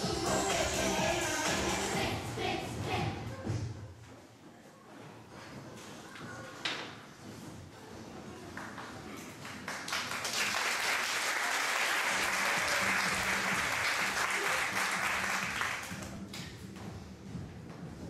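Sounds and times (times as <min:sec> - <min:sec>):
audience applauding: 0:09.5 - 0:16.2.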